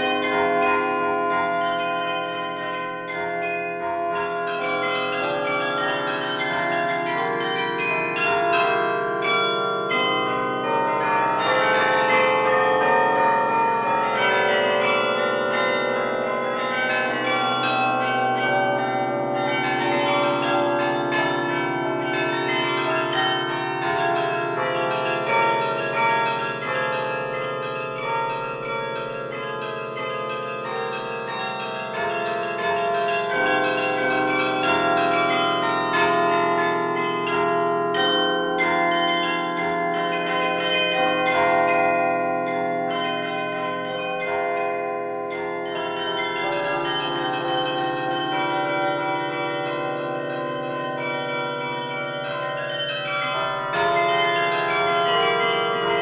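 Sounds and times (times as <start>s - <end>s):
carillon bells playing a tune: 0.0s - 56.0s.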